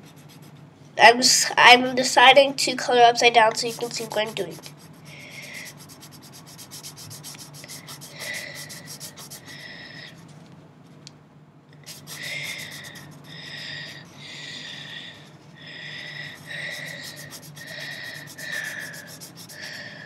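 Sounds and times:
pen scratching on paper: 0:00.0 - 0:00.6, 0:03.4 - 0:10.2, 0:11.8 - 0:13.3, 0:16.3 - 0:19.8.

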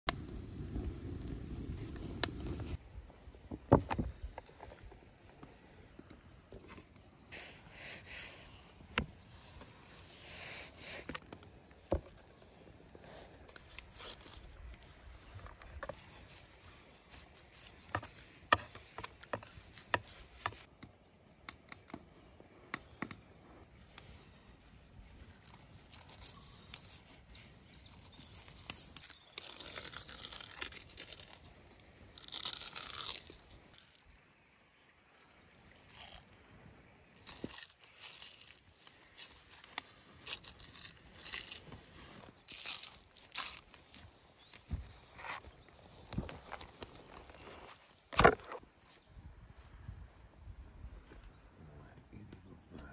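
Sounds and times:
wet tearing of membrane: 0:28.0 - 0:34.1, 0:37.3 - 0:44.0.

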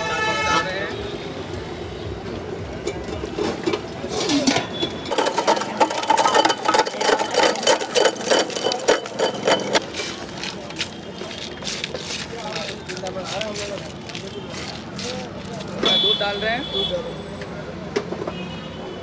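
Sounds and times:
ice crusher grinding ice: 0:05.0 - 0:15.6.

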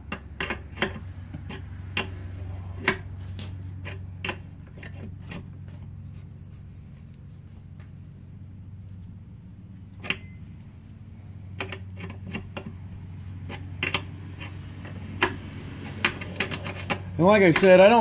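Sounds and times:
steady low hum: 0:00.0 - 0:18.0
wrench clinking on metal pipe: 0:10.0 - 0:10.5.

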